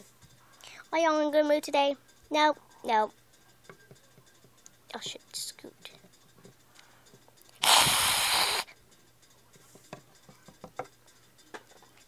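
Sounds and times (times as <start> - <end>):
hiss-like rush: 7.6 - 8.7.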